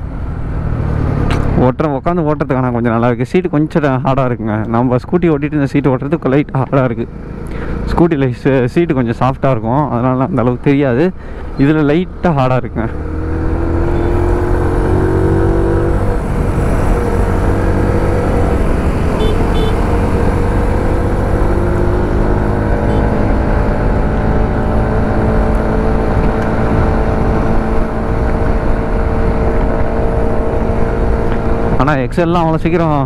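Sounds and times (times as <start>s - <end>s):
road noise: 0.0s - 33.0s
moped engine running: 14.0s - 24.0s.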